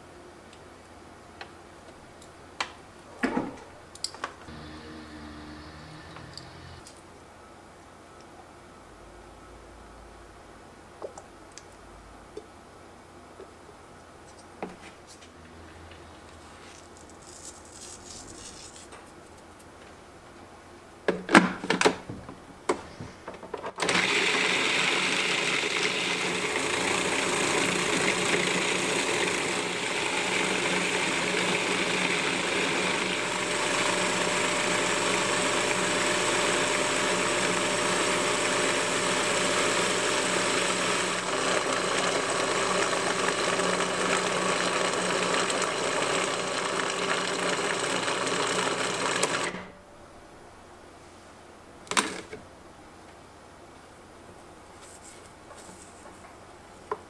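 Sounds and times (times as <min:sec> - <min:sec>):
food processor motor running: 0:04.5 - 0:06.8, 0:23.8 - 0:49.6.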